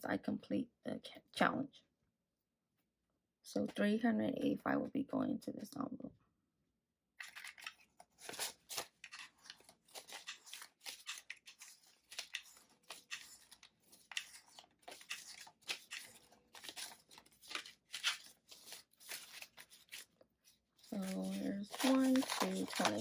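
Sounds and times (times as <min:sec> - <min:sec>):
banknotes rustling: 0:07.2 - 0:23.0.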